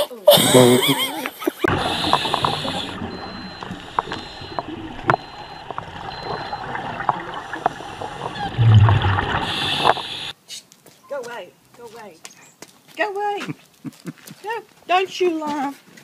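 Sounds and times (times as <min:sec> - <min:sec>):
regulator breathing hiss: 0:01.7 - 0:03.0, 0:09.3 - 0:10.3
rumble of exhaled bubbles: 0:01.7 - 0:10.3.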